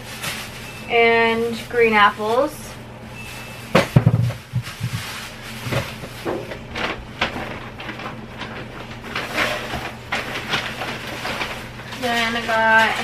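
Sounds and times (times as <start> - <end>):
plastic bags rustling: 0.0 - 13.0
dull knocks: 3.8 - 5.1.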